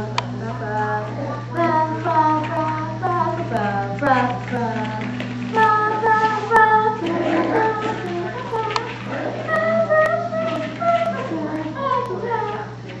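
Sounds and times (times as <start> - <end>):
child singing wordless tune: 0.0 - 13.0
steady low hum: 0.0 - 13.0.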